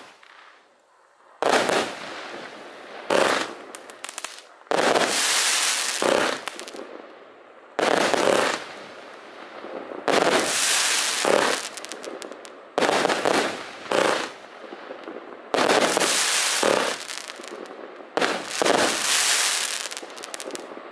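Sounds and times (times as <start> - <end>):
firework volleys crackling: 3.1 - 6.9, 10.1 - 14.4, 15.6 - 20.8.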